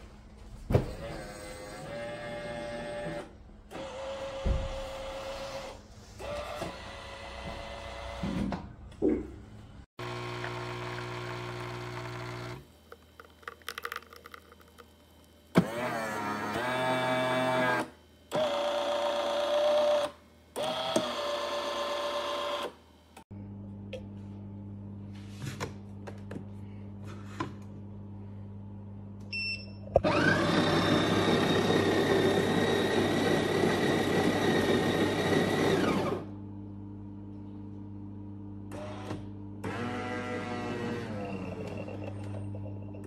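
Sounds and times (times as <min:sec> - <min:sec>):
espresso machine motor whirring: 0:10.0 - 0:14.9, 0:15.6 - 0:17.8, 0:18.4 - 0:22.8, 0:30.0 - 0:36.3.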